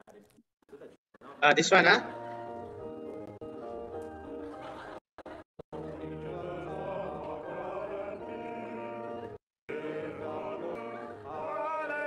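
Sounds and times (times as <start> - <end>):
congregation singing a hymn: 5.8 - 12.0.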